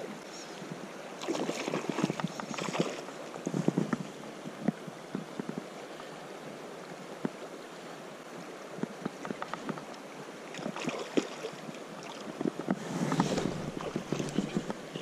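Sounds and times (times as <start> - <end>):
river current flowing: 0.0 - 15.0
water splashes and knocks: 1.2 - 5.7, 8.7 - 15.0.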